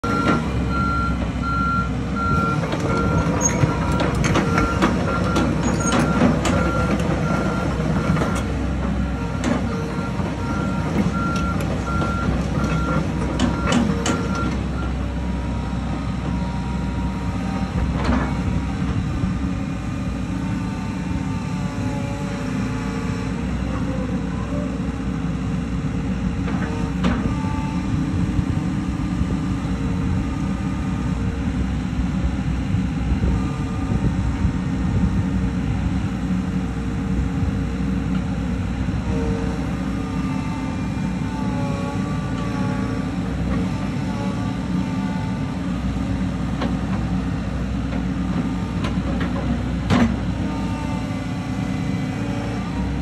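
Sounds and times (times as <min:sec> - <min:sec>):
excavator engine running: 0:00.0 - 0:53.0
hydraulics labouring: 0:00.0 - 0:53.0
machine knocks and clanks: 0:02.6 - 0:07.2.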